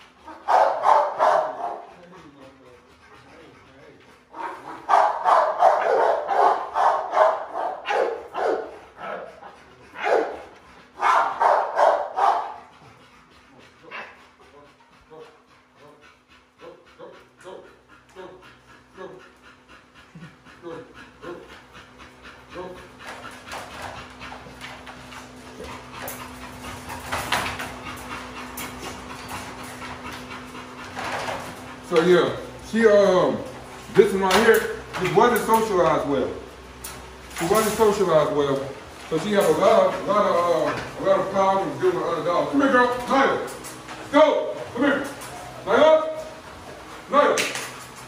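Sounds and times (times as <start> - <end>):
dog panting: 0.0 - 48.0
dog barking: 0.3 - 1.9, 4.4 - 9.2, 10.0 - 10.4, 11.0 - 12.6.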